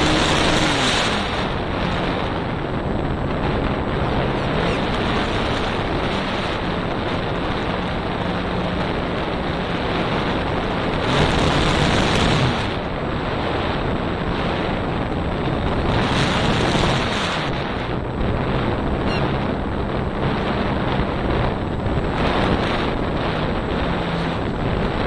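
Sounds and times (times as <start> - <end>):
faint electric motor and propeller hum: 0.0 - 25.0
wind rushing over microphone: 0.0 - 25.0.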